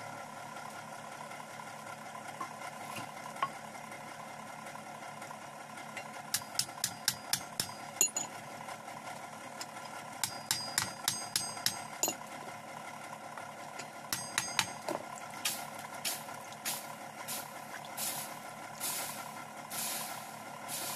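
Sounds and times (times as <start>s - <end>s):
hammer striking iron on anvil: 6.3s - 8.4s, 10.2s - 12.2s, 14.1s - 15.6s.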